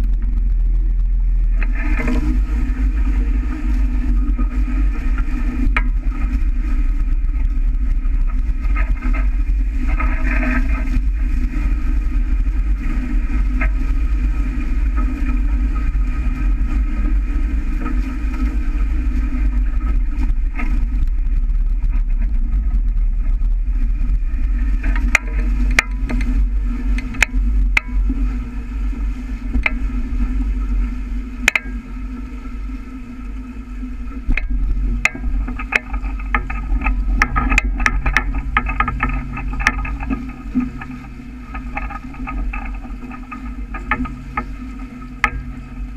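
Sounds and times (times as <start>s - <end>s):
water rushing past hulls: 0.0s - 45.9s
water slapping against hull: 0.0s - 45.9s
wind buffeting microphone: 0.0s - 45.9s.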